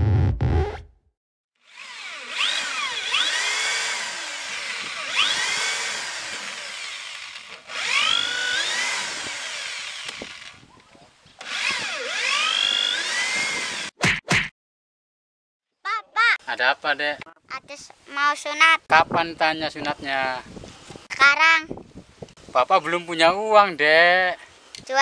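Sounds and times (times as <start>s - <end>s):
power tool running on wood: 1.6s - 10.6s, 11.4s - 14.0s.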